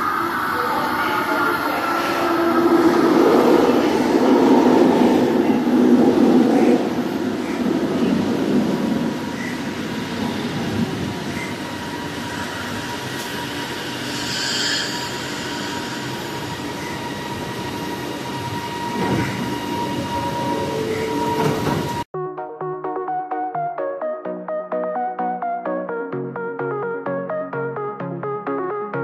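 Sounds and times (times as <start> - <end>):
steady high whine: 0.0 - 22.1
train rail noise: 0.0 - 22.1
electronic music: 22.1 - 29.0.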